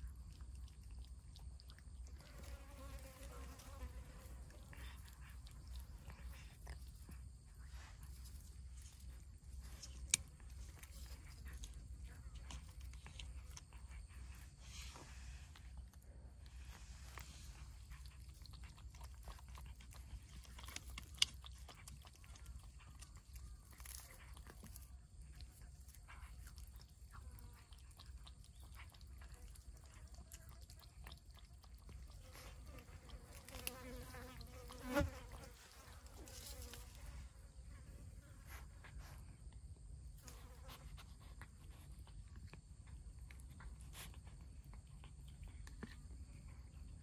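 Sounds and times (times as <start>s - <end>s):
cats lapping and chewing: 0.0s - 47.0s
fly buzzing: 32.5s - 37.0s.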